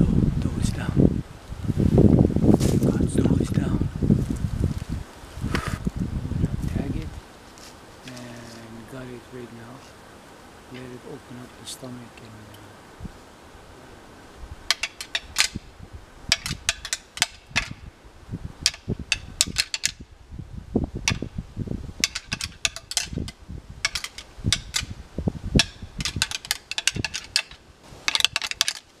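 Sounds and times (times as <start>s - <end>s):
sharp clicks and knocks: 16.3s - 17.8s, 22.0s - 24.9s, 25.6s - 28.9s.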